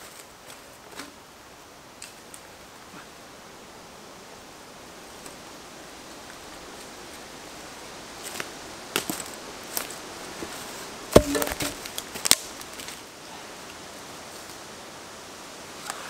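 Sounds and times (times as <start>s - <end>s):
background hiss: 0.0s - 16.0s
woody knocks of logs: 10.4s - 12.4s.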